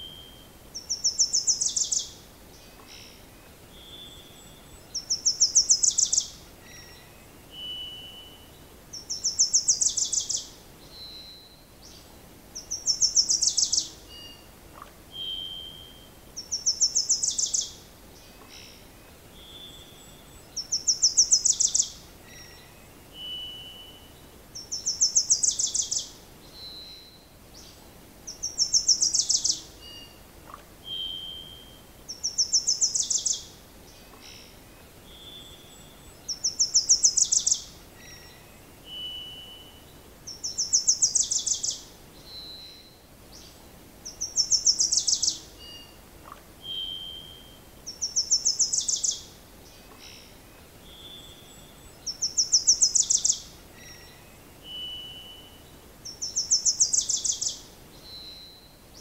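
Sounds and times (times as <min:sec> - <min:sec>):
songbird trilling: 0:00.0 - 0:02.2, 0:03.8 - 0:08.3, 0:08.9 - 0:11.4, 0:12.6 - 0:17.8, 0:19.4 - 0:27.2, 0:28.3 - 0:33.5, 0:35.2 - 0:49.3, 0:50.9 - 0:58.6
faint steady hiss: 0:00.0 - 0:59.0
single whistled bird notes: 0:46.6 - 0:47.6.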